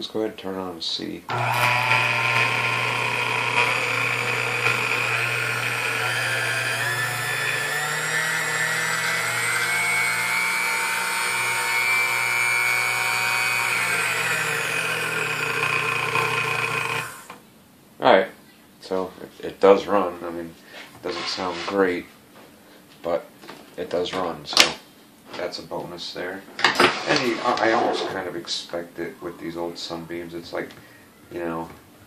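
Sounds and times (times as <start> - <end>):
stand mixer motor running: 1.3 - 17.4.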